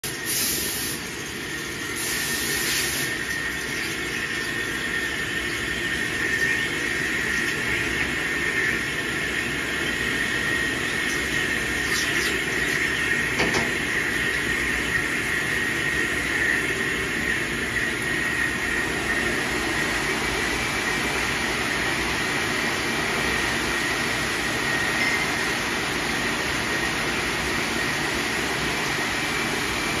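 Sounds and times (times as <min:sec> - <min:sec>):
thin high whine: 0:00.2 - 0:30.0
metal lathe cutting: 0:01.0 - 0:21.1.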